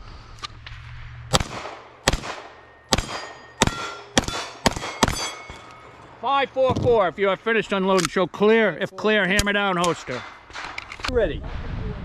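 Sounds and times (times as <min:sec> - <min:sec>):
gunshots: 0:00.7 - 0:05.6
steel plate clanging: 0:02.6 - 0:06.2, 0:09.4 - 0:11.1.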